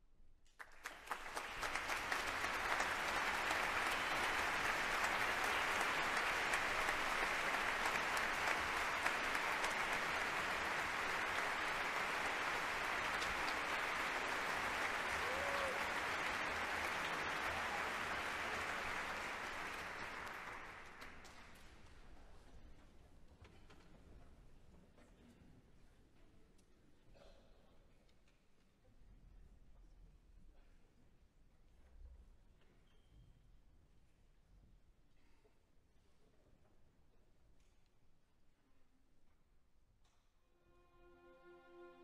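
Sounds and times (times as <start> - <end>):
audience applauding: 0.6 - 21.7.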